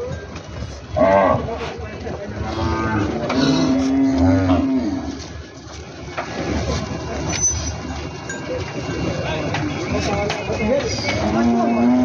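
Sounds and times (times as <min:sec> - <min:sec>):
cattle mooing: 0:02.3 - 0:05.2, 0:11.1 - 0:12.0.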